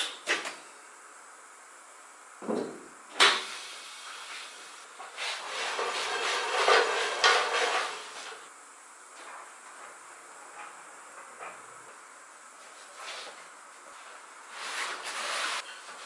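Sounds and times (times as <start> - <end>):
scraping and clattering: 5.4 - 8.4.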